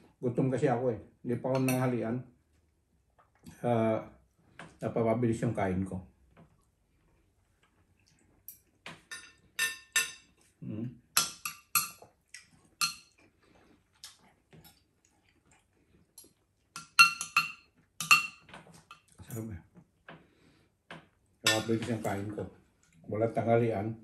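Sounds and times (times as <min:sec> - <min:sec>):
cutlery clinking on plate: 0:08.5 - 0:10.4, 0:16.8 - 0:19.4, 0:21.4 - 0:22.3.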